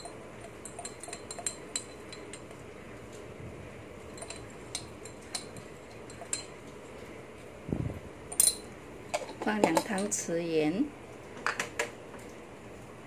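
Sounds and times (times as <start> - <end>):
metal spoon clinking on container: 0.0 - 2.6, 4.1 - 6.6, 8.3 - 10.2.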